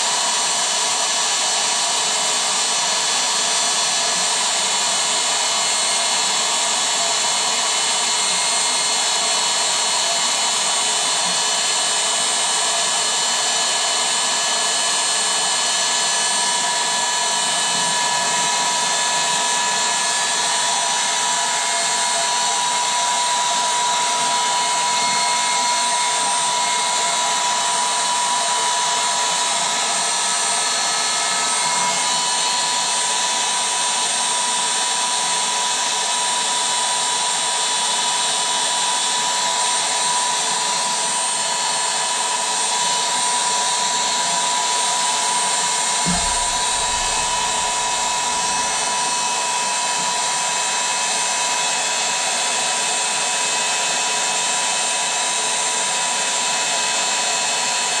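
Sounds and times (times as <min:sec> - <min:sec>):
electric air pump whining: 0:00.0 - 0:54.8
low bump: 0:46.1 - 0:48.9.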